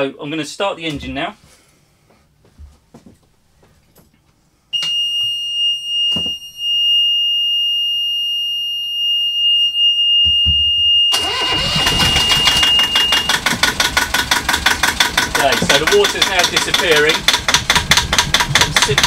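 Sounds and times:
engine starter cranking: 11.1 - 19.0
diesel engine clatter: 11.2 - 19.0.

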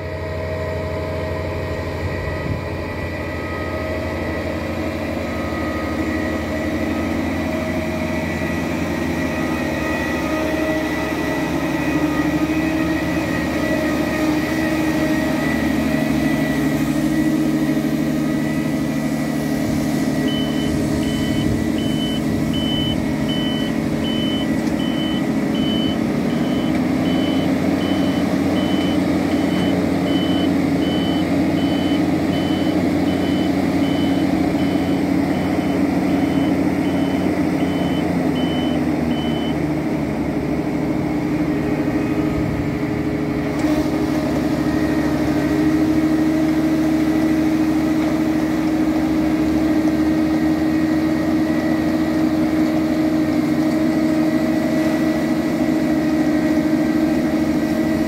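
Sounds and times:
harvester machinery drone: 0.0 - 58.0
beeper sounding: 20.2 - 39.6.

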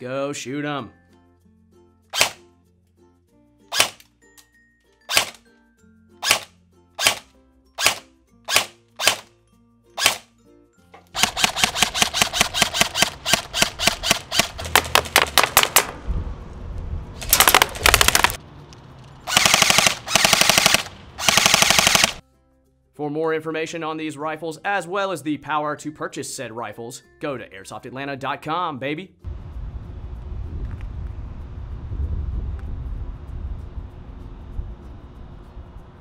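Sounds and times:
airsoft gun firing: 2.1 - 2.4, 3.7 - 4.0, 5.1 - 5.4, 6.2 - 9.3, 10.0 - 10.3, 11.1 - 16.0, 17.2 - 18.4, 19.3 - 22.2.

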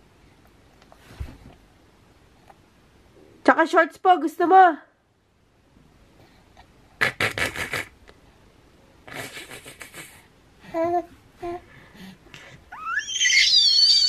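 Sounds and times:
baby laughing: 9.1 - 10.2
baby squealing: 12.7 - 14.0.

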